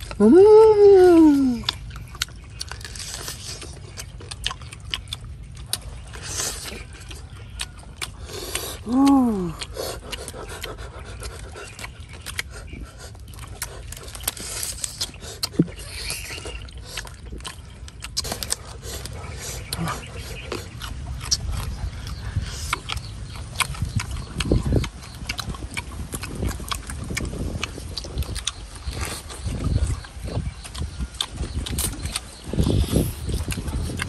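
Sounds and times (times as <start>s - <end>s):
chewing: 0.0s - 34.0s
person humming: 0.2s - 1.7s, 8.8s - 9.6s
crisp skin and bones crackling: 1.2s - 34.0s.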